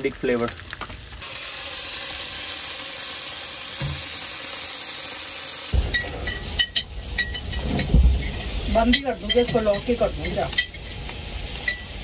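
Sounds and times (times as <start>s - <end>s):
fish sizzling in a frying pan: 0.0s - 12.0s.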